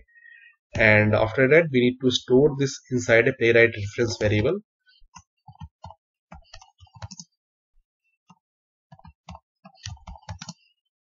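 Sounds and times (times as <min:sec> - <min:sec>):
computer keyboard typing: 0:05.1 - 0:07.3, 0:08.3 - 0:10.8.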